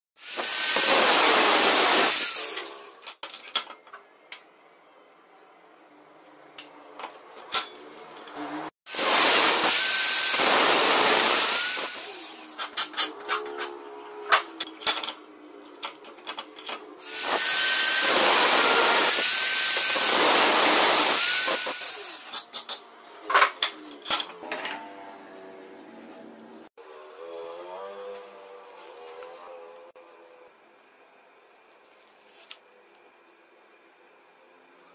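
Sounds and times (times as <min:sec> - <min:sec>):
power tool grinding steel: 0:08.9 - 0:12.7, 0:17.0 - 0:22.4.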